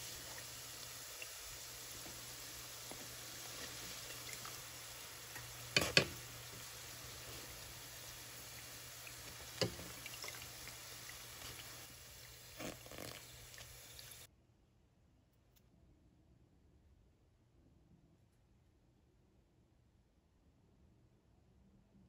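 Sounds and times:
food sizzling in deep oil: 0.0 - 14.3.

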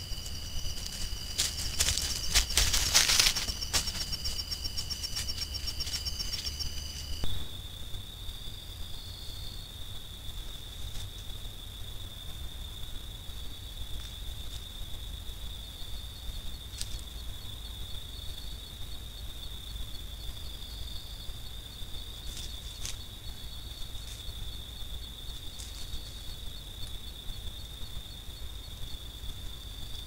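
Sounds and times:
insect high-pitched trill: 0.0 - 12.3, 19.4 - 30.0
faint pulsing insect: 0.0 - 30.0.

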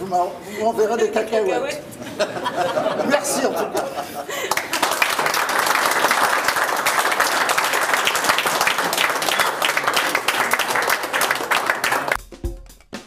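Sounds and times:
audience applauding: 4.3 - 12.2
drum music: 11.5 - 13.0.

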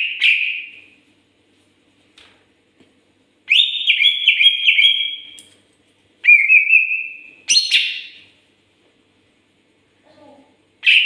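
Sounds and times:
bird singing whistled phrases: 3.5 - 5.4, 6.2 - 8.2.

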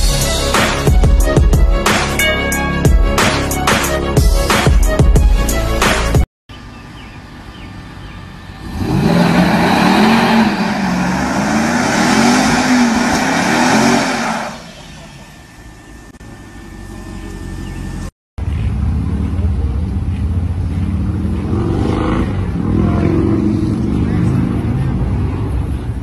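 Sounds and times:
engine revving hard: 8.5 - 14.9, 21.0 - 24.9
tires squealing on pavement: 8.5 - 16.1.

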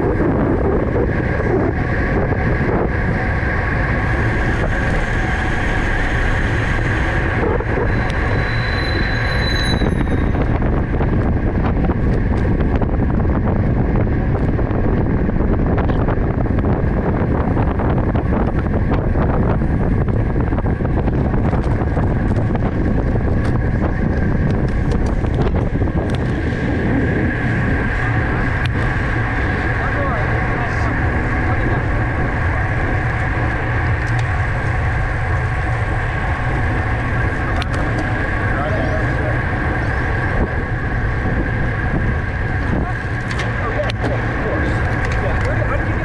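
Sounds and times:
road rumble: 0.0 - 46.0
wind on microphone: 0.0 - 46.0
short high squeal: 7.8 - 10.5.

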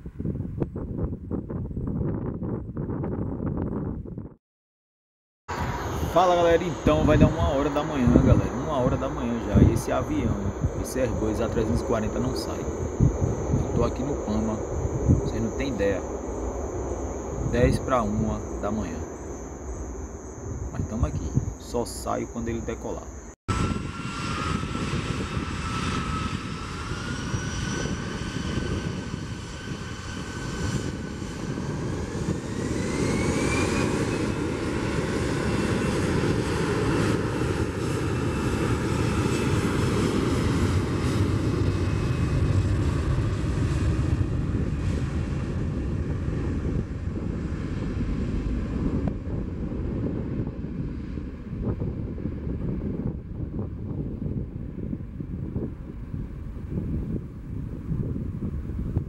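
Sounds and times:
low rumble: 5.5 - 27.3
jet engines whining: 5.5 - 54.9.

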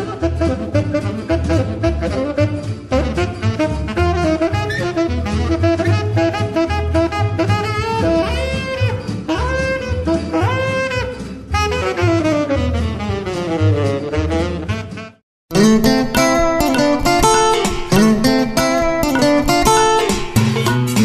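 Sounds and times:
music with sliding lead melody: 0.0 - 21.0.

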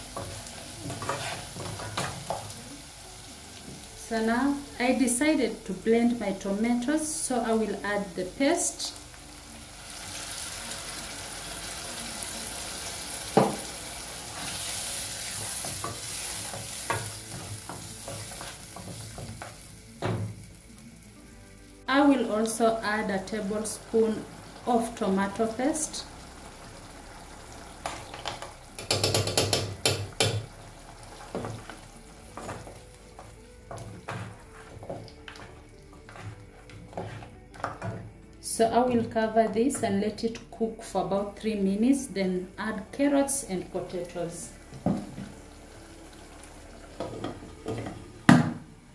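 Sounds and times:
pan sizzling: 0.0 - 40.3, 40.9 - 48.9
wooden spoon stirring stew: 31.1 - 38.0.

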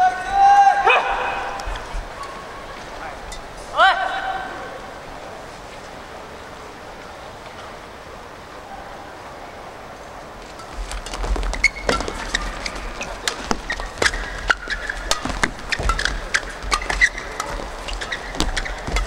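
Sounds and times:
shoes squeaking on court: 10.4 - 19.0
racket striking shuttlecock: 11.4 - 19.0.

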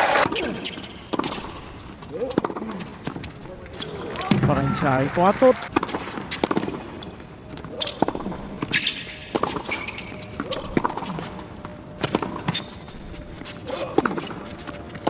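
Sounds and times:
racket hitting tennis ball: 0.2 - 3.3, 5.7 - 11.3
sneakers squeaking on court: 0.2 - 4.4, 5.8 - 15.0.

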